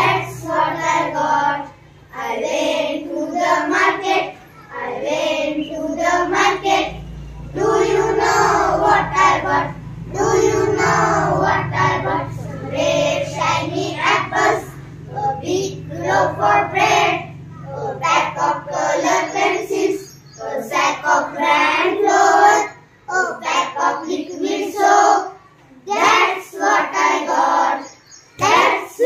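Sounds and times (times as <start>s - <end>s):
girls singing in unison: 0.0s - 29.0s.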